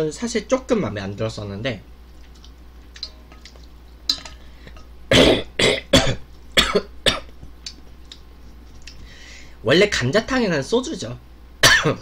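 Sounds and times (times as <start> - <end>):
man coughing: 5.1 - 7.3, 11.6 - 12.0.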